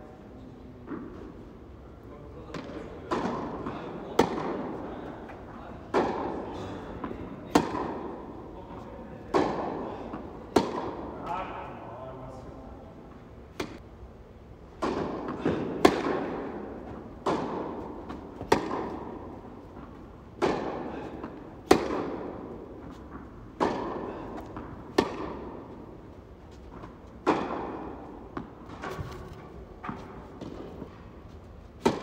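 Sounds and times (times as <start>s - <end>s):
tennis ball bouncing: 2.5s - 8.4s, 9.2s - 11.2s, 13.5s - 13.8s, 14.7s - 31.1s, 31.7s - 32.0s
rackets striking tennis ball: 2.5s - 11.5s, 13.4s - 32.0s.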